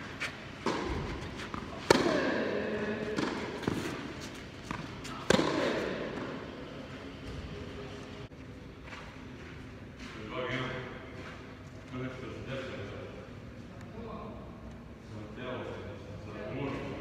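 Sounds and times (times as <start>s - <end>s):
tennis balls struck by racquets: 0.5s - 6.6s.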